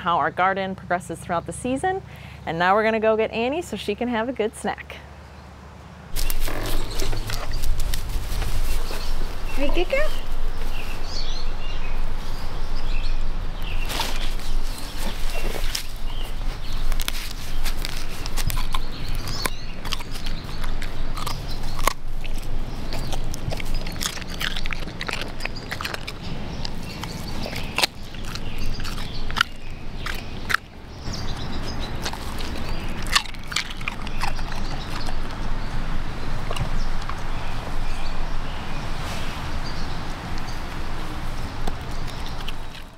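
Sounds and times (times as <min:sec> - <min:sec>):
animal crunching raw radish: 0:06.1 - 0:11.0, 0:13.6 - 0:38.0, 0:39.9 - 0:42.9.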